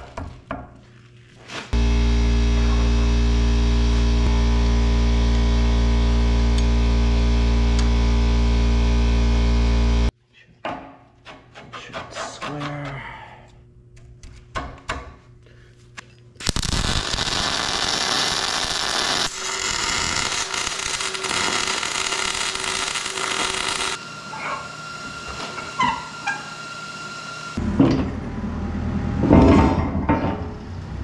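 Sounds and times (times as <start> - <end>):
welding arc hissing: 1.8 - 10.1, 16.4 - 24.0.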